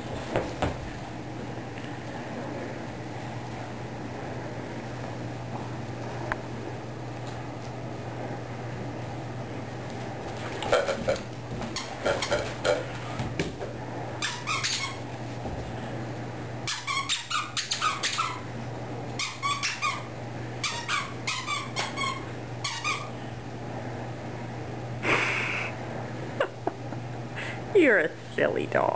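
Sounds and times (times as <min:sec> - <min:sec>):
squeaky toy being chewed: 0:14.2 - 0:15.0.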